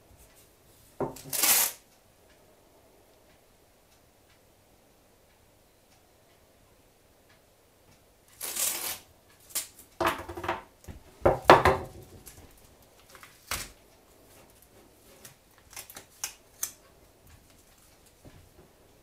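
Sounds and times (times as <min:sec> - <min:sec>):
masking tape tearing: 0:01.2 - 0:01.8, 0:08.3 - 0:09.8, 0:15.2 - 0:16.8
wooden stock knocking on worktop: 0:10.0 - 0:12.2.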